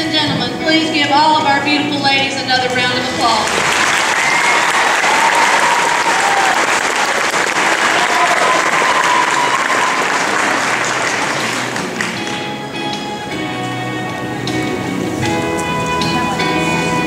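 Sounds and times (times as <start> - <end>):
audience applauding: 3.4 - 12.6.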